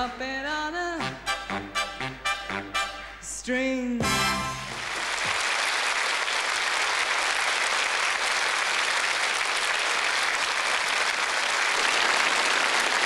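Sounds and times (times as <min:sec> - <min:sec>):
large audience applauding: 0:04.6 - 0:13.0.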